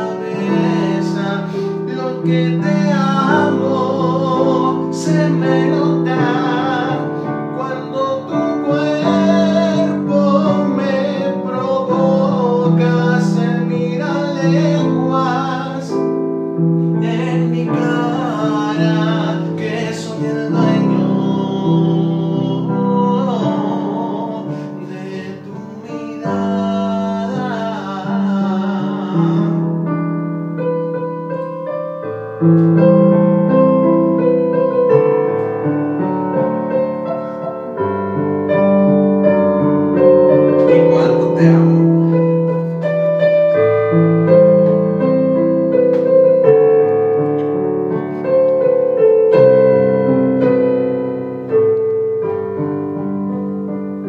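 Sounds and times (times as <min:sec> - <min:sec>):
man singing a ballad: 0:00.0 - 0:30.0, 0:38.6 - 0:46.5
piano backing track: 0:00.0 - 0:54.0.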